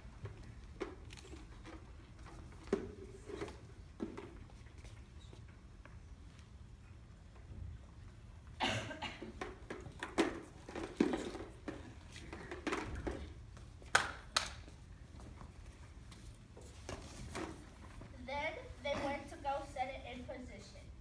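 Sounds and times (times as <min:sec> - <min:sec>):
knocks and clatter on hard floor: 0:09.2 - 0:13.4.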